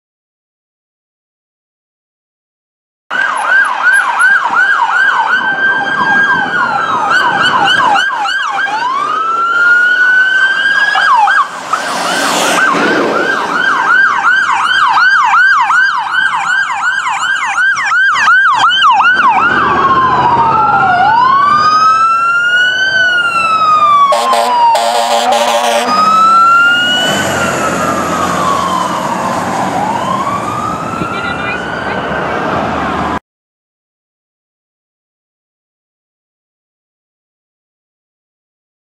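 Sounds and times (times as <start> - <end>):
emergency vehicle sirens: 3.1 - 33.2
fire truck air horns: 24.0 - 26.5.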